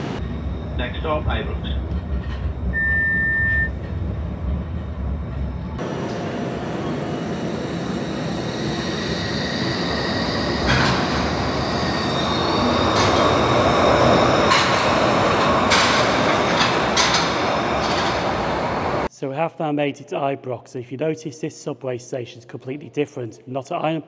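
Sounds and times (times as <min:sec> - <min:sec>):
train rising high whine: 0:00.0 - 0:19.1
train running rumble: 0:00.0 - 0:19.1.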